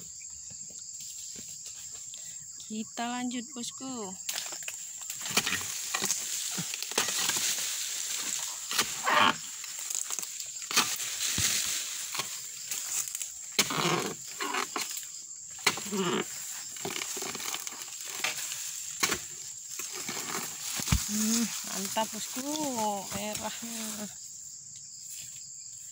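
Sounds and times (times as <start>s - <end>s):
fronds rustling and scraping: 4.2s - 24.3s
blade chopping palm stalks: 4.3s - 24.0s.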